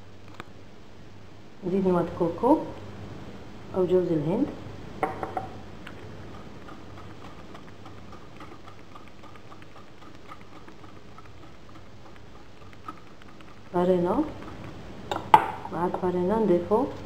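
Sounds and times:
whisk ticking against bowl: 5.9s - 15.9s.

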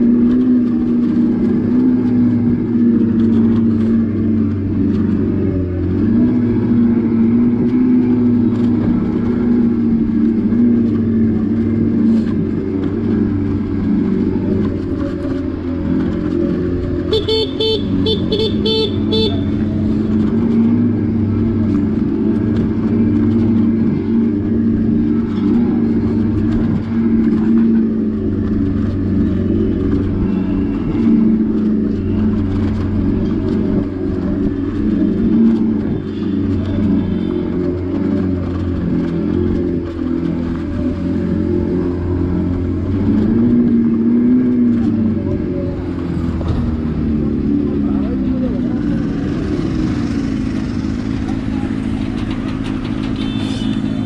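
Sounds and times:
electric motorcycle humming: 0.0s - 54.0s
road and wind noise: 0.0s - 54.0s
horn tooting: 17.1s - 19.8s, 53.0s - 54.0s.

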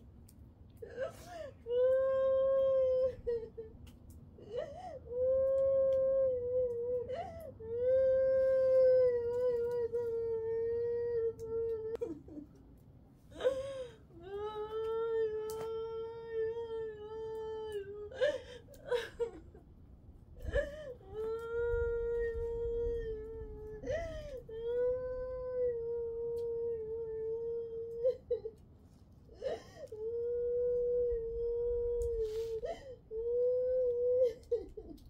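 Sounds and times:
sobbing gasps for breath: 0.9s - 1.6s, 29.3s - 30.0s.

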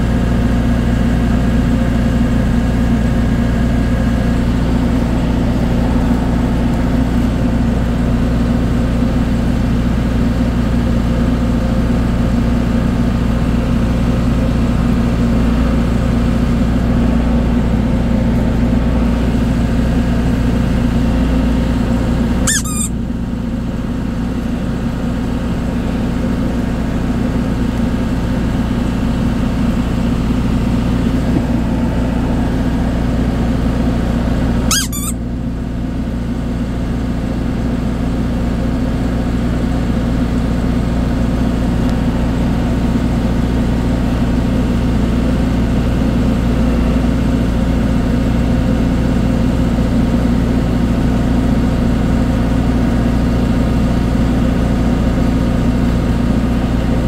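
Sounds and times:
ship engine droning: 0.0s - 36.2s
sharp chirp: 22.5s - 22.9s, 34.7s - 35.2s.

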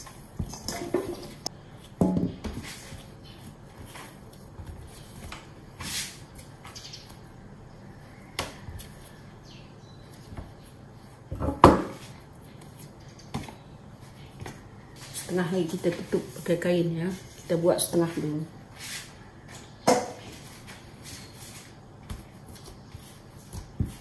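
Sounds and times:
dough thudding and knocking: 0.2s - 5.8s, 11.3s - 12.2s, 22.0s - 24.0s.

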